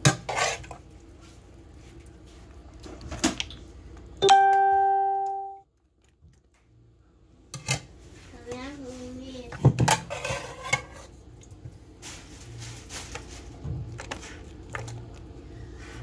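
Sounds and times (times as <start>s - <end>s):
ringing chime: 4.2s - 5.6s.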